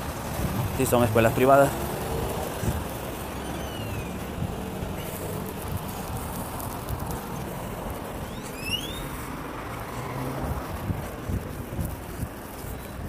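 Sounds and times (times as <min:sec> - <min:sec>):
street traffic: 0:00.0 - 0:13.0
wind on microphone: 0:00.0 - 0:13.0
short high whistles: 0:03.4 - 0:04.1, 0:08.3 - 0:09.2.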